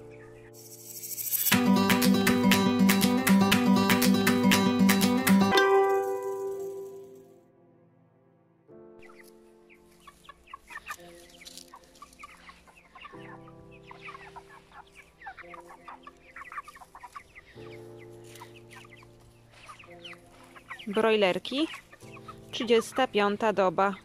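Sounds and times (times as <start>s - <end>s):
soft guitar music: 1.5s - 7.4s
chickens calling: 9.0s - 24.0s.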